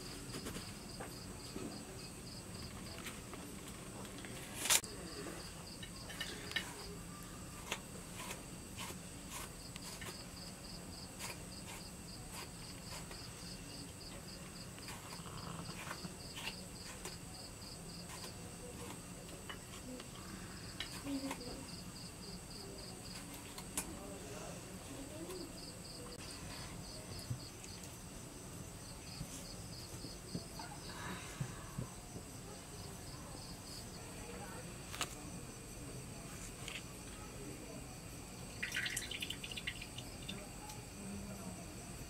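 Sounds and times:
insects chirping in pulsed trill: 38.1s - 41.1s.

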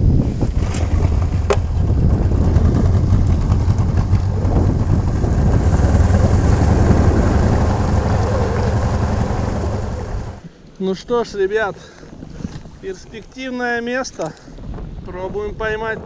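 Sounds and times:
outboard motor running: 1.1s - 10.4s.

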